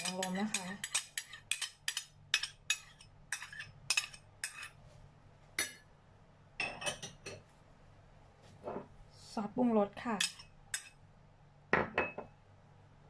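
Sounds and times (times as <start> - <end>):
metal spoon clinking on bowls: 0.0 - 4.8, 5.6 - 5.8, 6.6 - 7.4, 10.2 - 11.0.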